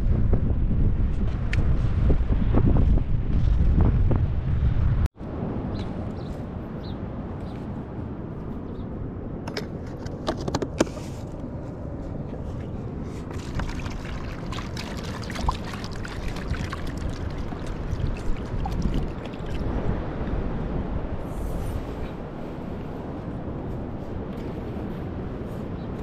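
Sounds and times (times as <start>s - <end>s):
wind noise on microphone: 0.0s - 26.0s
water splashing into plastic bowl: 13.3s - 19.7s.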